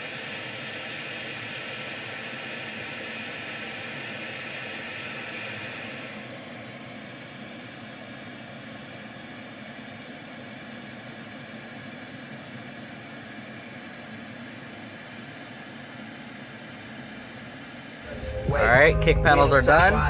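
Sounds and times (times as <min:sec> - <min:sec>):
pink noise hiss from speakers: 0:08.4 - 0:20.0.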